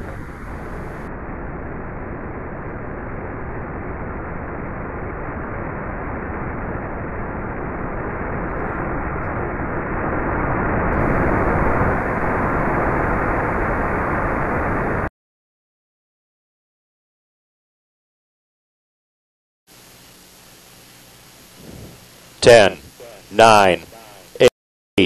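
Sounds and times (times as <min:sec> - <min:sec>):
rocket engine roar: 0:00.0 - 0:15.1, 0:21.4 - 0:24.5.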